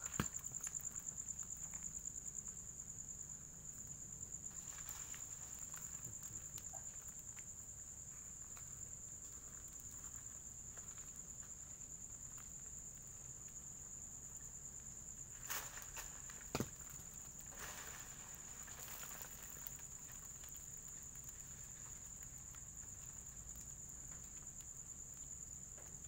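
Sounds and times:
cricket trilling: 0.0s - 26.0s
rustles in vegetation: 4.1s - 25.4s
footsteps through vegetation: 15.4s - 20.5s.

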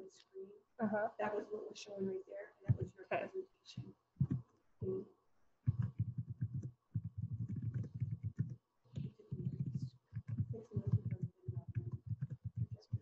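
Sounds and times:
typing on computer keyboard: 5.7s - 13.0s.

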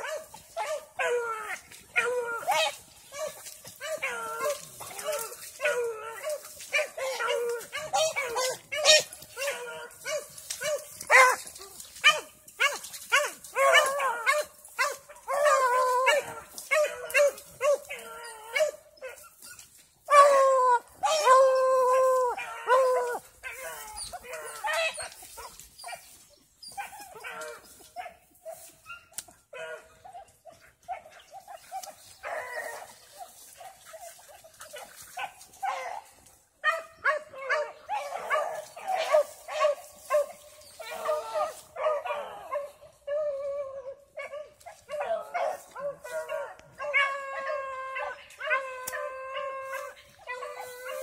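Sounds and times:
dogs howling: 0.0s - 19.2s, 20.1s - 26.0s, 37.0s - 51.0s
dogs barking: 0.0s - 51.0s.

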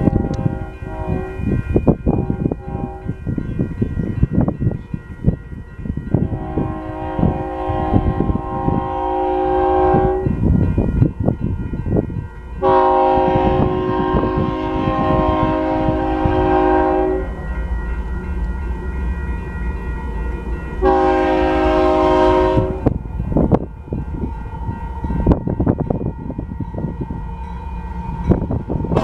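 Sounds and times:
locomotive air horn blasts: 0.0s - 1.5s, 2.1s - 3.2s, 6.2s - 10.4s, 12.6s - 17.3s, 20.8s - 23.0s
low rumble of train: 0.0s - 29.0s.

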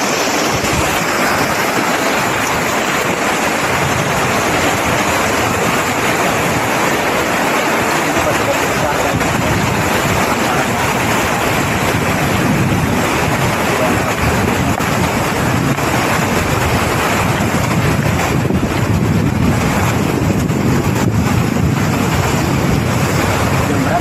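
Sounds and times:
fast-flowing river rushing: 0.0s - 24.0s
wind buffeting microphone: 0.0s - 24.0s.

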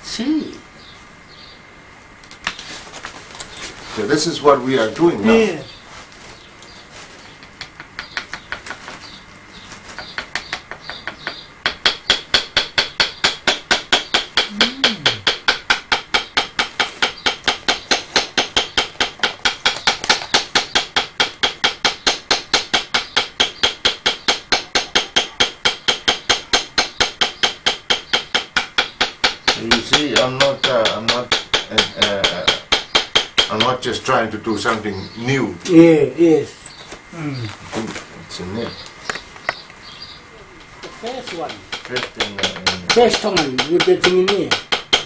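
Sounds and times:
mallet tapping tattoo comb: 7.4s - 9.0s, 10.0s - 33.9s, 41.2s - 45.0s.

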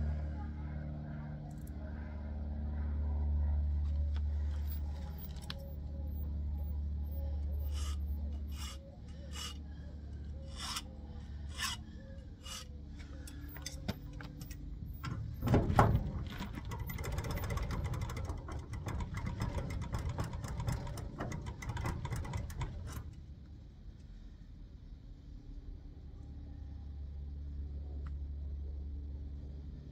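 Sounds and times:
metal scraping on metal: 4.7s - 14.1s.

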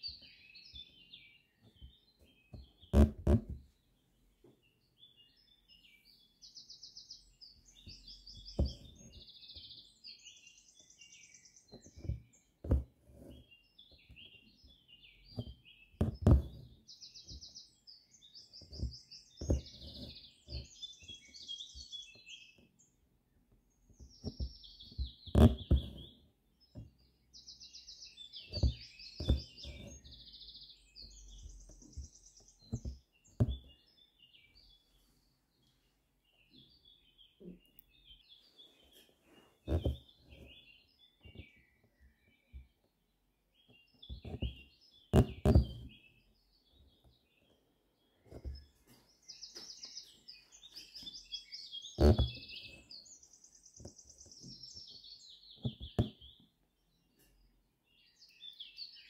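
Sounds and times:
songbirds chirping and singing: 0.0s - 3.0s, 3.7s - 59.0s
needle tapping through fabric: 2.5s - 3.6s, 8.4s - 9.0s, 11.7s - 13.4s, 15.3s - 16.7s, 18.6s - 20.7s, 24.2s - 26.1s, 28.5s - 30.0s, 31.7s - 33.7s, 39.7s - 40.5s, 44.1s - 45.9s, 48.3s - 48.6s, 52.0s - 52.6s, 55.6s - 56.2s.

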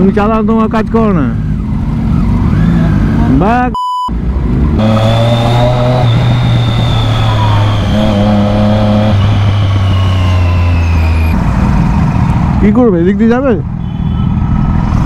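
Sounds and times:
motorcycle engine at low revs: 1.1s - 12.8s
faint high whine: 4.9s - 11.4s.

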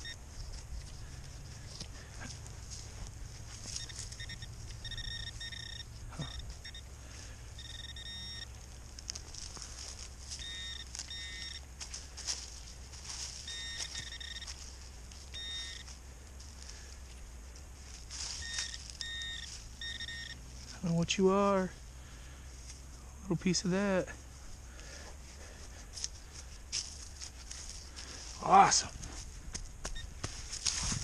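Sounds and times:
metal detector beeping: 0.0s - 16.8s, 18.0s - 21.0s, 29.8s - 30.2s.

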